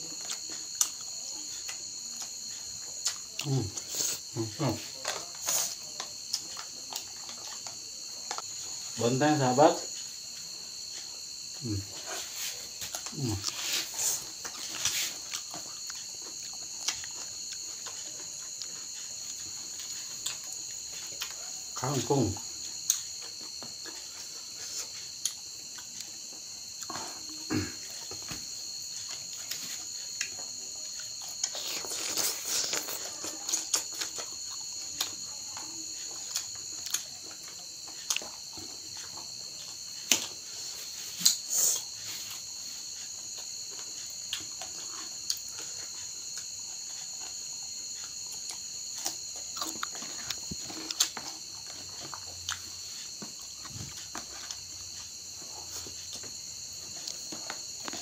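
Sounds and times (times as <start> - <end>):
chewing and crunching vegetables: 0.0 - 58.0
crickets chirring: 0.0 - 58.0.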